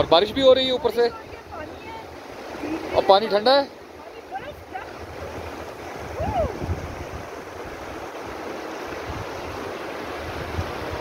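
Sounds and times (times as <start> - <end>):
stream rushing over rocks: 0.0 - 11.0
wind buffeting microphone: 4.3 - 11.0.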